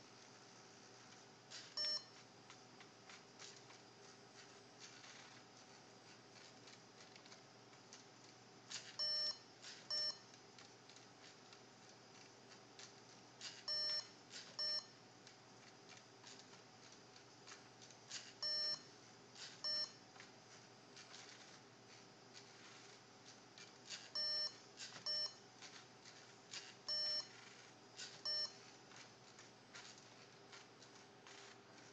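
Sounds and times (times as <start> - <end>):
electronic beeps: 28.2 - 28.6.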